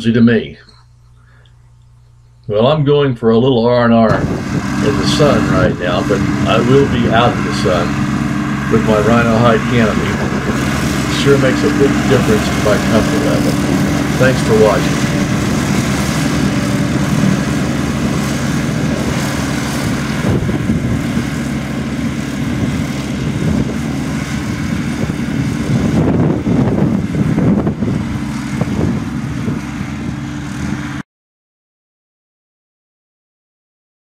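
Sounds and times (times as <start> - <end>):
tractor engine mowing grass: 4.0 - 31.0.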